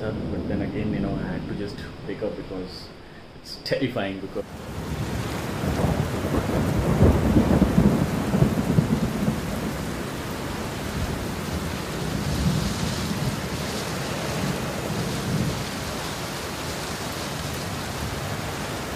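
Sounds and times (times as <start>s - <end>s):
thunder rumbling: 0.0s - 3.4s, 4.4s - 18.9s
heavy rain pouring: 4.3s - 18.9s.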